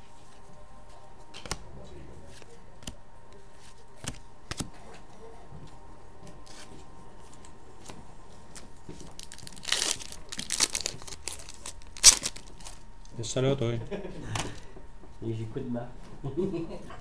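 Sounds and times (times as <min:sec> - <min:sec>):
foil card pack tearing: 0:09.1 - 0:12.8.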